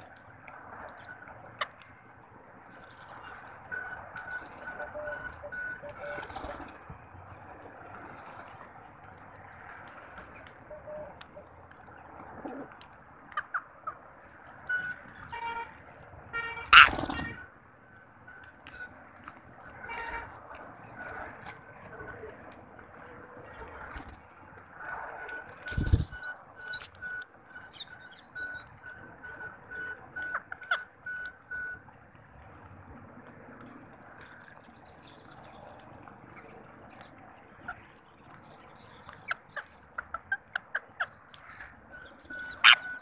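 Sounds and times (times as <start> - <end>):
nasal bird calls: 36.3 - 43.0.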